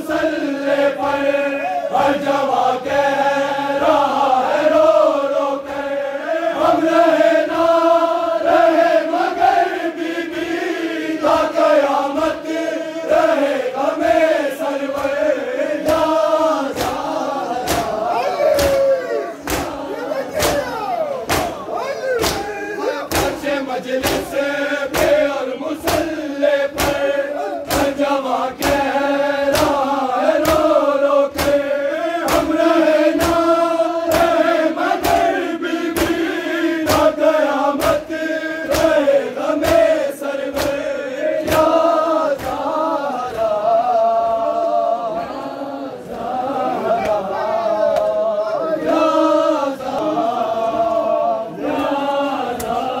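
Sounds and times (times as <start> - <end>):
men chanting in unison: 0.0 - 53.0
hand-on-chest slaps: 14.9 - 15.2, 15.8 - 37.2, 37.8 - 43.6, 47.9 - 48.2, 51.8 - 52.9.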